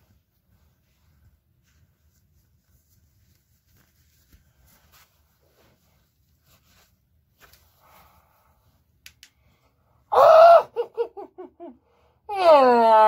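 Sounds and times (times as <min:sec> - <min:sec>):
faint clicks and rustles: 0:00.0 - 0:08.1
person crying out: 0:10.1 - 0:11.7, 0:12.3 - 0:13.0
person laughing: 0:10.3 - 0:11.8.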